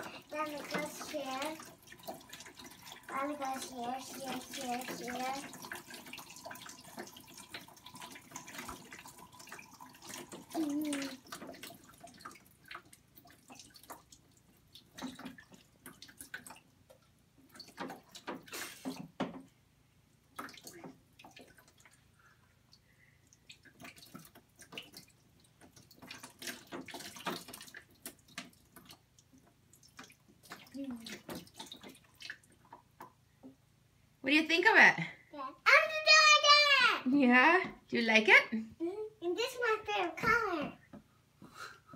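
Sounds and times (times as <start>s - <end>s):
water trickling and splashing: 0.0s - 19.6s, 20.2s - 33.6s, 39.3s - 40.8s.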